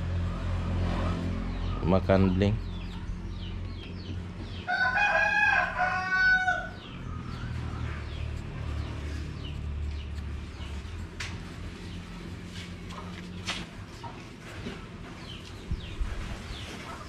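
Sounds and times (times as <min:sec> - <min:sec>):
rooster crowing: 0:04.6 - 0:07.0.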